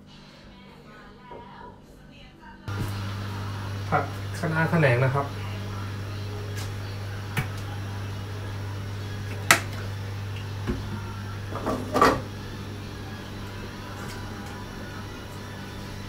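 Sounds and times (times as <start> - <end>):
steady low hum: 2.7 - 16.0
kitchen items clicking and knocking: 10.6 - 12.3.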